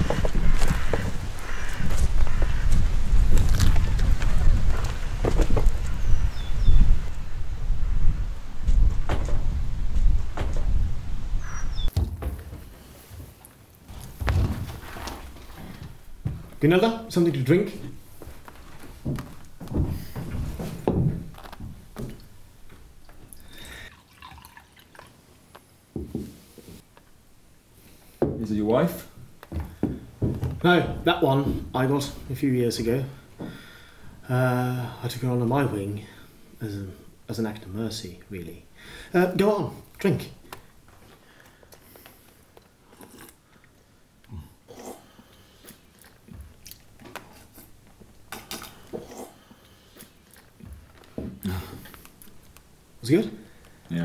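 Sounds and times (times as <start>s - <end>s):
drink pouring into cup: 23.9s - 25.2s
man sipping and swallowing: 41.7s - 52.5s.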